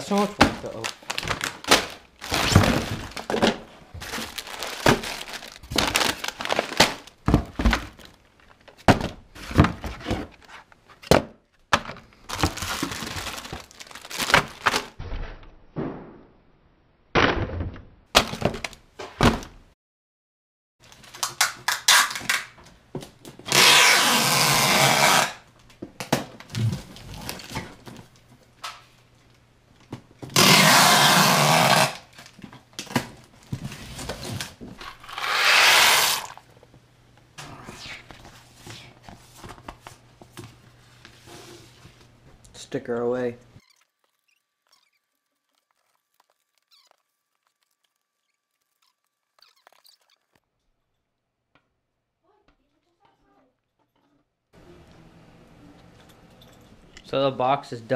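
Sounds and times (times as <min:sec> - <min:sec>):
snack bags crinkling: 0:00.0 - 0:08.7, 0:12.0 - 0:15.0, 0:43.6 - 0:50.4
packages knocking against cardboard: 0:00.4 - 0:08.1, 0:08.8 - 0:10.3
packing tape being pulled: 0:20.9 - 0:22.5, 0:23.4 - 0:25.4, 0:30.3 - 0:32.3, 0:34.3 - 0:36.4.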